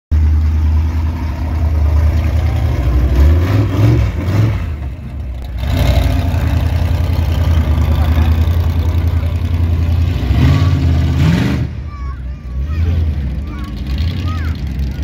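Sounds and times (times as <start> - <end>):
truck engine revving: 0.1 - 15.0.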